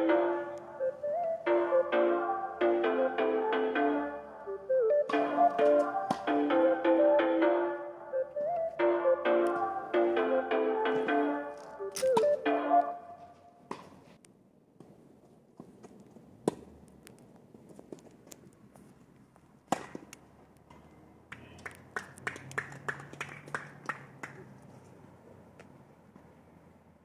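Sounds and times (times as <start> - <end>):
tennis ball hitting racket strings: 5.1 - 6.4, 19.7 - 20.1.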